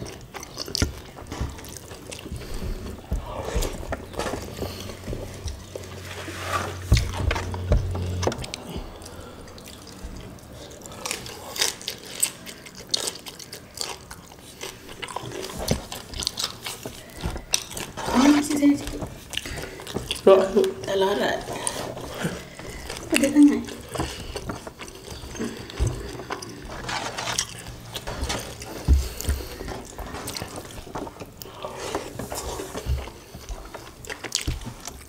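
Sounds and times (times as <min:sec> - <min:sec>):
wet smacking and chewing: 0:00.0 - 0:35.0
low hum: 0:02.2 - 0:11.0.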